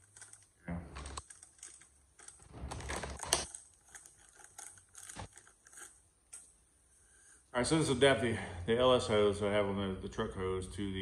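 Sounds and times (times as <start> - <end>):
plastic packaging crinkling: 0.0 - 6.0.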